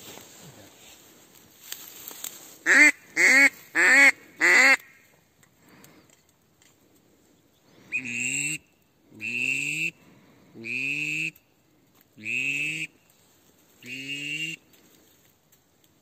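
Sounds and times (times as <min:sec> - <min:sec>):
duck call quacks: 0:02.6 - 0:05.0, 0:07.9 - 0:10.0, 0:10.6 - 0:11.4, 0:12.2 - 0:12.9, 0:13.8 - 0:14.6.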